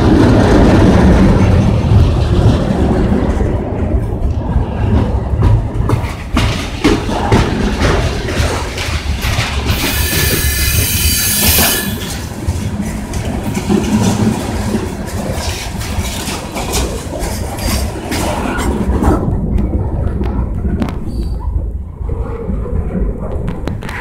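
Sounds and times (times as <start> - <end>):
wheels clicking over rail joints: 0.0 - 21.7
freight train rumbling past: 0.0 - 24.0
high wheel squeal: 9.7 - 12.2.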